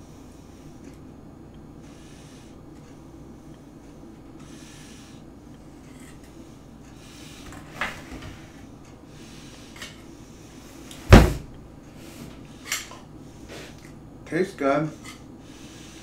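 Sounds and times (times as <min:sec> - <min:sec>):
loud thump in tray: 0:11.1 - 0:11.5.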